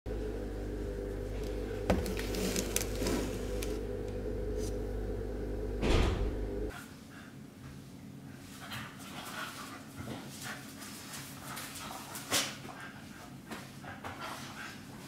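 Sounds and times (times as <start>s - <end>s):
steady low hum: 0.1s - 6.7s.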